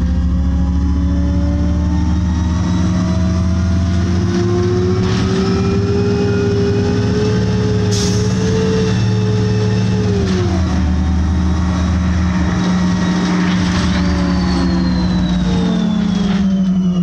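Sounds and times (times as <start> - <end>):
bus engine drone: 0.0 - 17.0.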